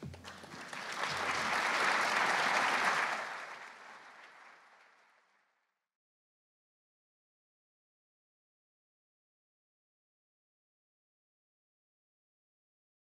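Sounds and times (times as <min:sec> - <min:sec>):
audience applauding: 0:00.0 - 0:05.5.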